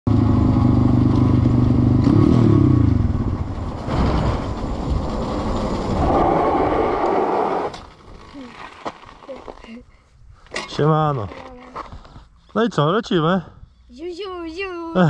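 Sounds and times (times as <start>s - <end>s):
dirt bike engine revving: 0.2s - 3.2s.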